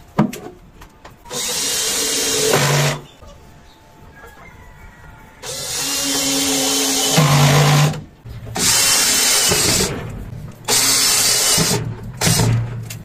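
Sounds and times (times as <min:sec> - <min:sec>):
power drill running: 0:01.3 - 0:03.0, 0:05.4 - 0:08.0, 0:08.6 - 0:09.9, 0:10.7 - 0:12.5.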